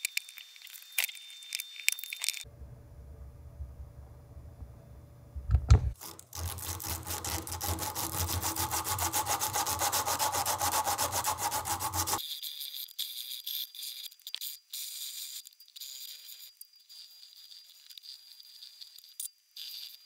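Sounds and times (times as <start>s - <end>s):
hand sanding wood rasping: 6.0s - 12.2s.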